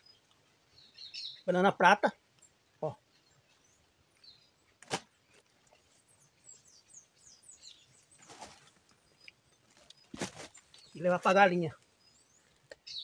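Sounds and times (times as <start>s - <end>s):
small birds chirping: 0.0s - 13.0s
sickle blade chop: 4.8s - 5.1s.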